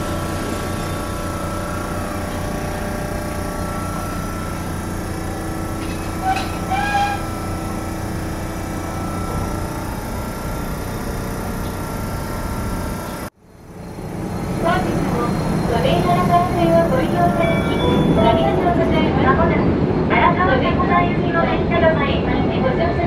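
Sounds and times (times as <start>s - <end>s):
tram equipment humming: 0.0s - 23.0s
short high-pitched beeps: 14.9s - 18.6s.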